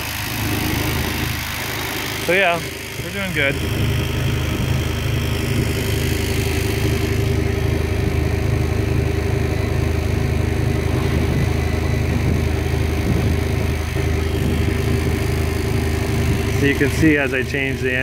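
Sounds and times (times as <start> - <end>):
electric boat motor humming: 0.0 - 18.0.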